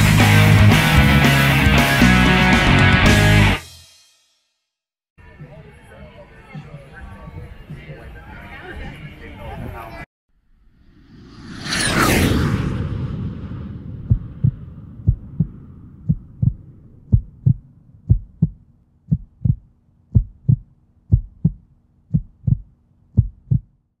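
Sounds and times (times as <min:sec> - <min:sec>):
whoosh: 0:10.4 - 0:18.5
heartbeat thumps: 0:14.0 - 0:23.8.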